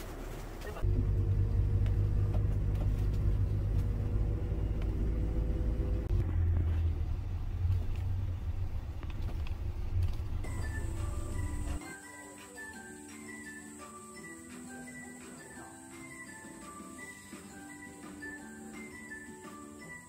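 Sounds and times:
minibus engine and road noise: 0.0 - 11.8.

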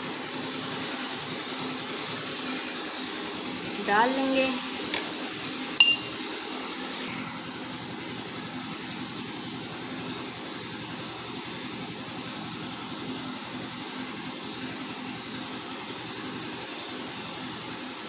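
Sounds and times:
low held tone: 5.8 - 6.2.

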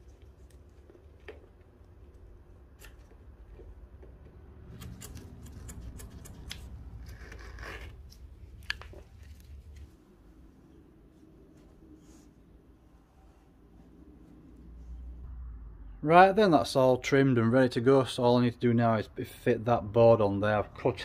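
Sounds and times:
scissors cutting fabric: 4.6 - 8.3.

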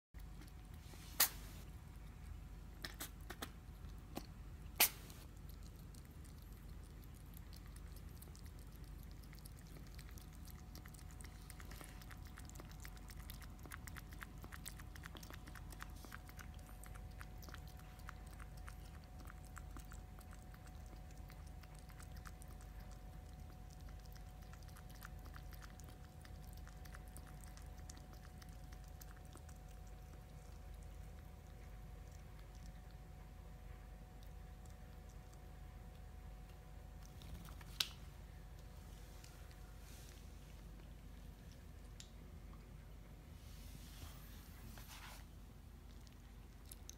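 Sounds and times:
kitten lapping water: 0.2 - 43.4, 45.2 - 46.9.

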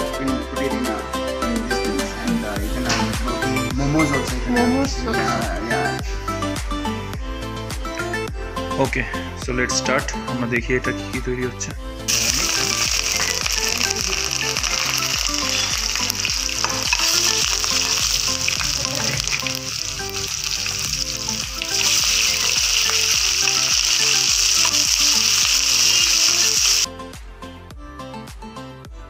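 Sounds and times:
garlic sizzling in hot oil: 12.1 - 26.9.

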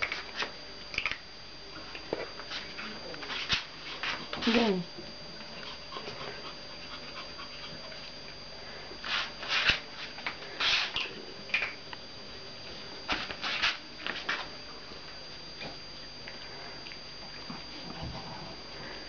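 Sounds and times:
dogs snuffling: 5.4 - 11.2.

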